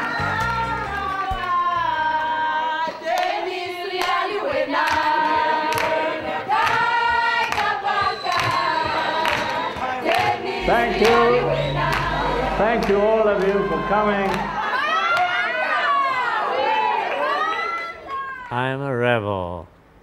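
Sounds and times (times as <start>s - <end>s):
group singing in chorus: 0.9s - 15.0s
hand clapping: 4.0s - 10.4s.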